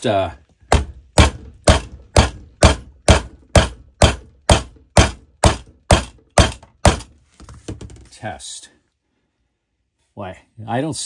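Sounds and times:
hammer striking plastic pipe: 0.6 - 8.0.

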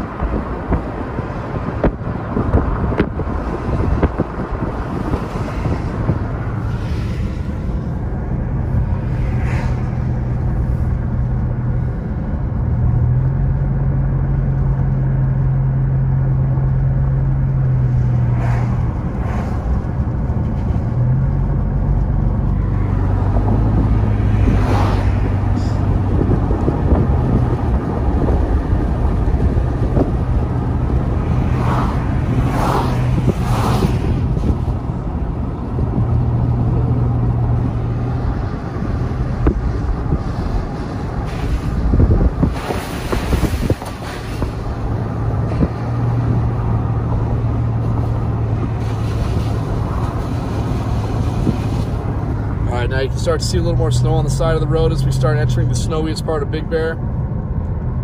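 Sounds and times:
car engine hum: 0.0 - 58.0
tyre and road noise: 0.0 - 58.0
short air rushes: 3.0 - 11.0, 29.3 - 35.0, 38.8 - 46.5, 47.8 - 52.6.

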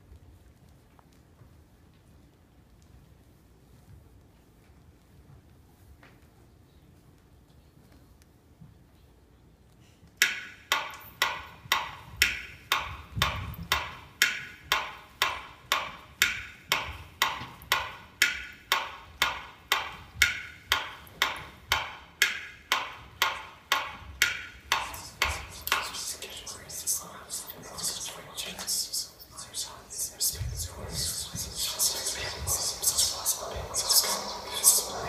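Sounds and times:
percussion beat sharp clicks: 10.2 - 35.0.

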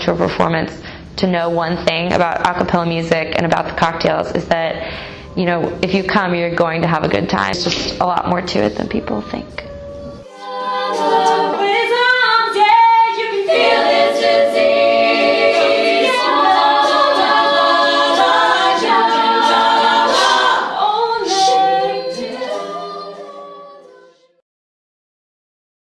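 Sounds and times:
women singing a cappella harmony: 10.0 - 24.4.

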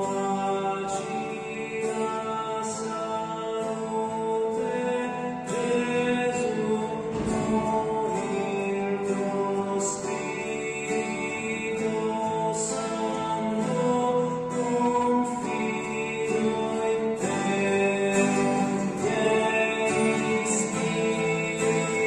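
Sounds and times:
acoustic guitar: 0.0 - 22.0
man singing: 0.0 - 22.0.

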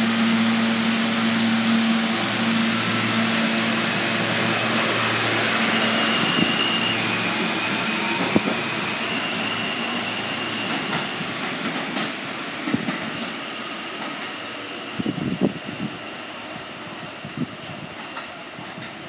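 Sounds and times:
thin high whine: 0.0 - 10.8
subway wheels rumbling on rail: 0.0 - 19.0.

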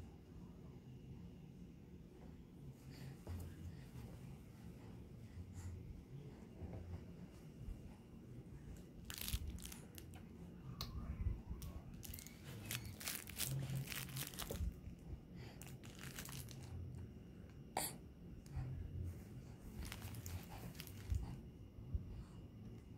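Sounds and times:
crinkling and rustling: 9.0 - 10.3, 11.9 - 15.0, 15.6 - 16.8, 19.7 - 21.4.

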